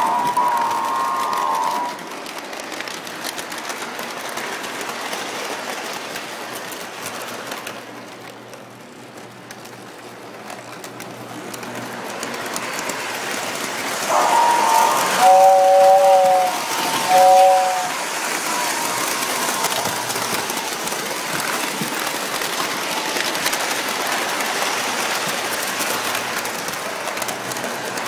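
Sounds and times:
whistle-like tone: 0.0s - 2.0s, 14.1s - 20.2s
model train rattling on track: 0.0s - 28.0s
wheels clicking on rail joints: 0.0s - 28.0s.

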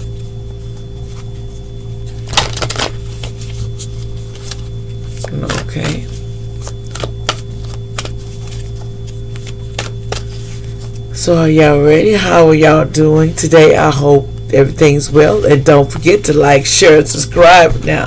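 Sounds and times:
low steady hum: 0.0s - 18.0s
cards being shuffled: 2.1s - 11.0s.

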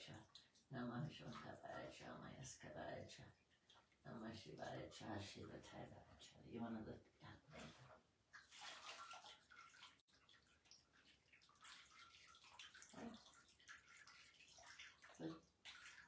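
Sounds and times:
water splashing and trickling: 0.0s - 16.0s.

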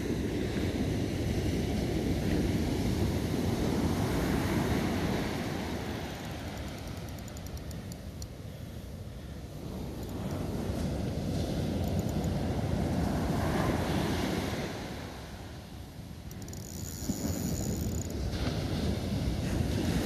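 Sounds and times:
wind buffeting microphone: 0.0s - 20.0s
spinning reel clicks: 6.1s - 8.4s, 11.8s - 12.4s, 16.2s - 18.2s.

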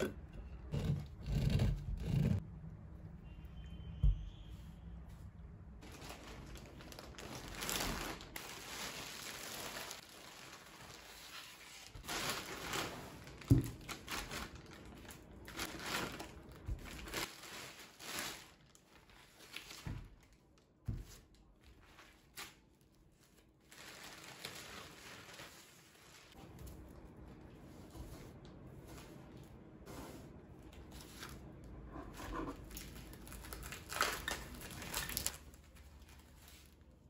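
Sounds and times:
plastic bag crinkling: 5.8s - 20.3s, 23.1s - 26.9s, 32.6s - 36.9s.

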